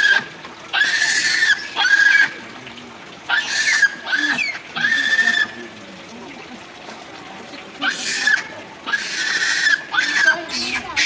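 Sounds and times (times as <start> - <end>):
infant monkey crying: 0.0 - 2.4, 3.3 - 5.6, 7.8 - 11.0.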